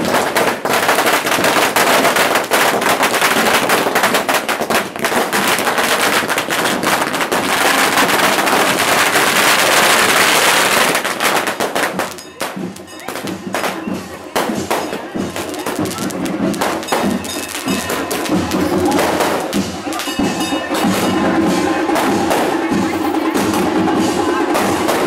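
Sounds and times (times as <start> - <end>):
firecrackers crackling: 0.0 - 25.0.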